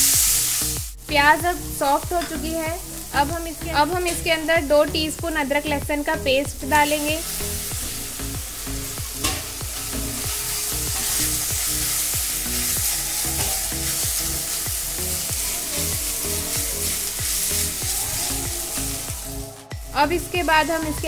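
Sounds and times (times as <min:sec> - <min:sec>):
onions sizzling in hot oil: 0:00.0 - 0:21.0
spatula stirring in pan: 0:08.9 - 0:19.4.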